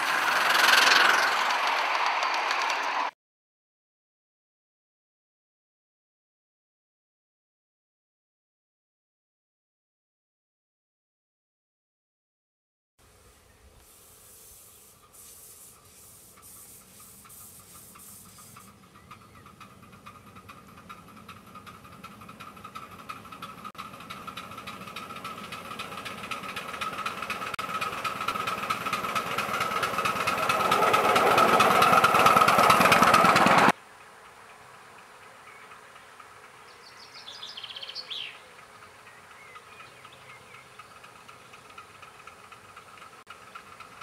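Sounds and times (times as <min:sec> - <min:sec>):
steam locomotive exhaust beating: 0:00.0 - 0:03.1, 0:13.8 - 0:34.2.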